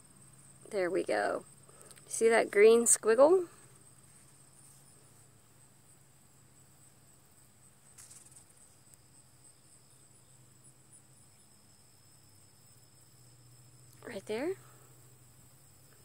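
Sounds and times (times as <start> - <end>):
soft rustle: 3.0 - 5.4, 7.8 - 9.0.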